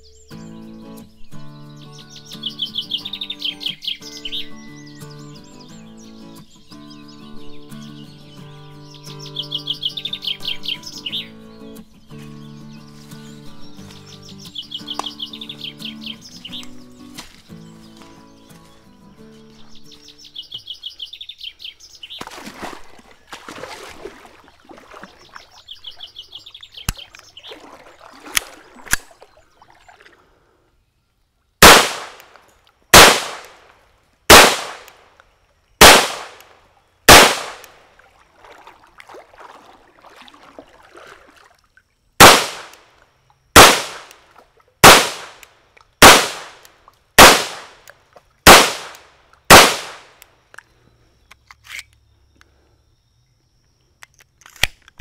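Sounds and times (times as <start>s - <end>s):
faint bird chirps: 0.0s - 22.2s
pistol shots: 31.6s - 33.6s, 34.3s - 35.0s, 35.8s - 36.5s, 37.1s - 37.8s, 42.2s - 42.8s, 43.6s - 44.2s, 44.8s - 45.4s, 46.0s - 47.8s, 48.5s - 50.2s.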